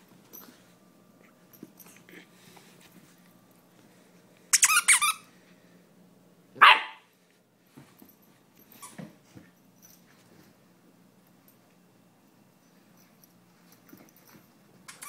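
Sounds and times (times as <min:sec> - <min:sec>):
puppy barking: 0:06.6 - 0:07.1.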